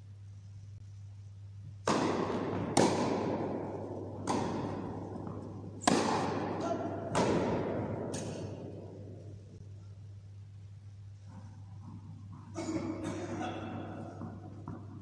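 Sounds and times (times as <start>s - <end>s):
tennis ball pops echoing: 1.8s - 9.3s.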